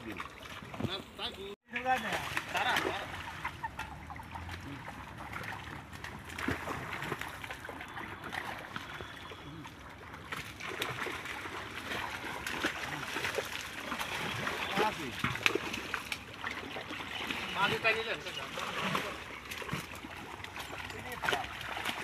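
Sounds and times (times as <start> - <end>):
water splashing and sloshing: 0.0 - 22.0.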